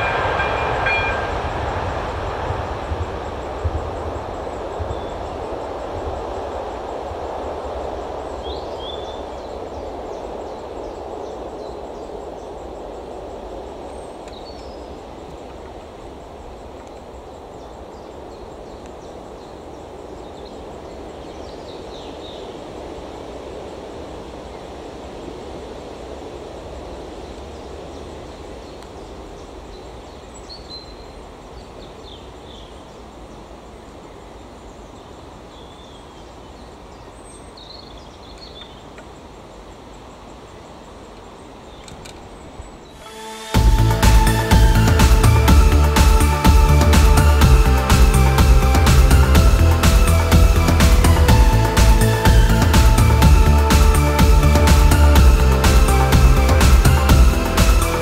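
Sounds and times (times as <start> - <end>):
low rushing background: 0.0 - 30.2, 39.1 - 58.0
small birds chirping: 34.6 - 39.3, 40.0 - 43.0.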